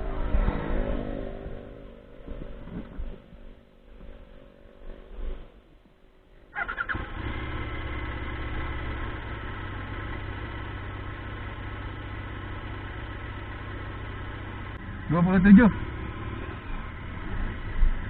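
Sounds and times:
motorcycle starter whine: 6.5s - 9.8s
motorcycle engine idling: 6.5s - 18.0s.

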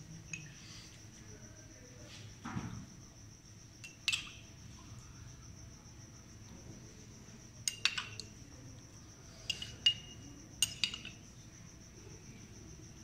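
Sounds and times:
metal spoon clinking on ceramic cup: 3.8s - 4.4s, 7.6s - 8.3s, 9.5s - 11.2s.

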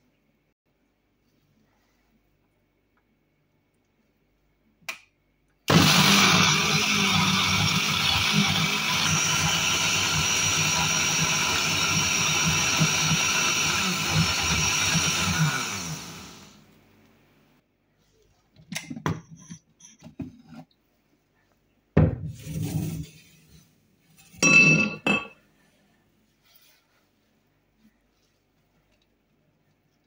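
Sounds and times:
blender motor running: 5.7s - 16.6s.

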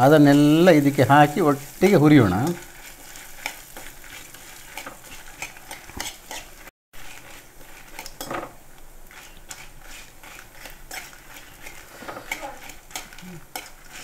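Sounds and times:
light sizzle: 0.0s - 14.0s
metal spatula scraping a pan: 0.0s - 14.0s.

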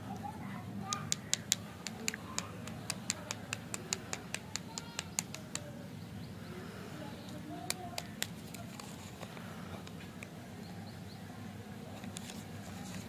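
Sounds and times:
rapid sharp clicks: 0.9s - 5.7s.

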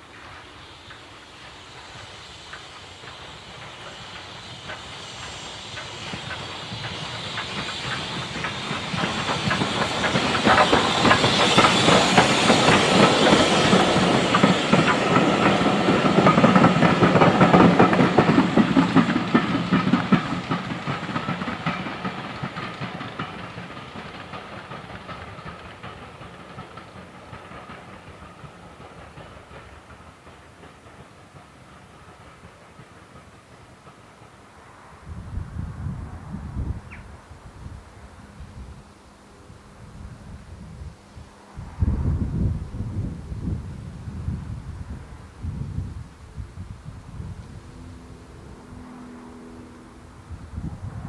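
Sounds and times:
train wheels clicking on rail joints: 0.0s - 35.0s
locomotive steam hiss: 0.0s - 51.0s.

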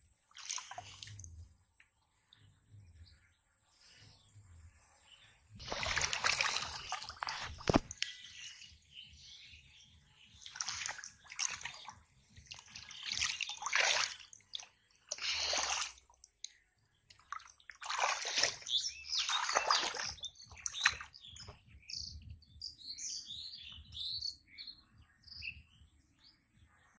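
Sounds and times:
small birds chirping: 0.0s - 27.0s
muddy water splashing: 0.2s - 1.5s, 5.6s - 8.6s, 10.2s - 21.6s.

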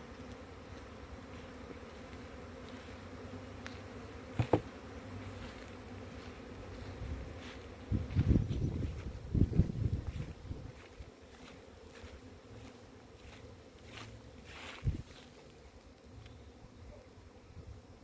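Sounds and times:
honey bees buzzing: 0.0s - 18.0s
brief thump: 4.3s - 4.7s.

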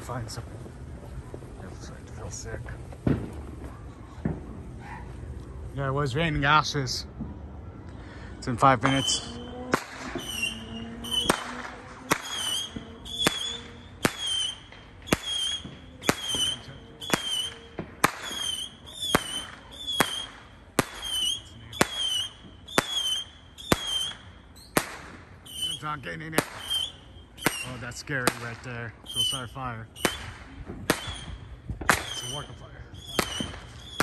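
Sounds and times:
fireworks cracking: 0.0s - 7.4s, 8.5s - 34.0s
firework whistle: 8.5s - 34.0s.

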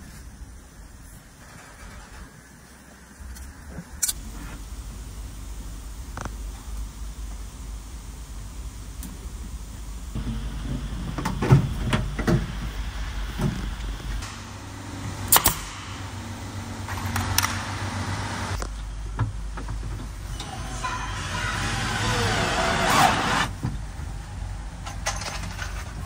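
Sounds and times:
knocks and clatter of parts: 10.2s - 14.5s, 18.6s - 21.0s, 24.7s - 26.0s
nail gun firing: 15.3s - 16.1s.

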